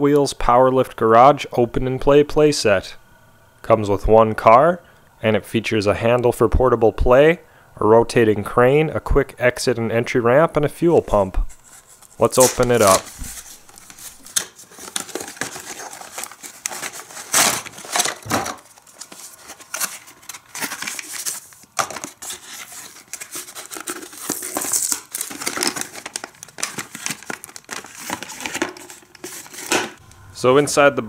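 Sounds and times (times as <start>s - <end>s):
paper sheet rustling: 11.5s - 30.0s
cardboard box being opened: 11.7s - 30.0s.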